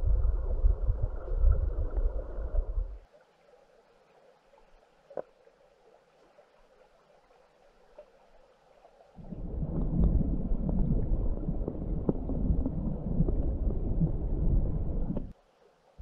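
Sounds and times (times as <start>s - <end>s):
underwater flowing water rumble: 0.0s - 15.4s
small underwater clicks: 4.1s - 15.3s.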